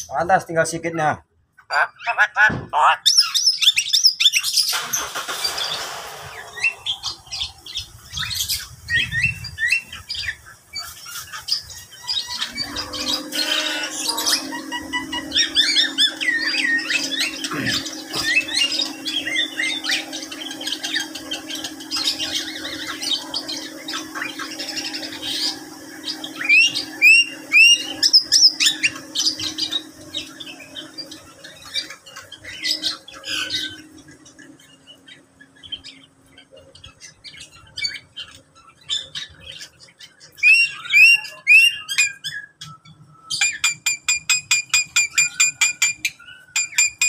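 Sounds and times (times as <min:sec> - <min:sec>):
birds chirping and squawking: 0:00.0 - 0:47.0
steady low hum: 0:04.7 - 0:41.5.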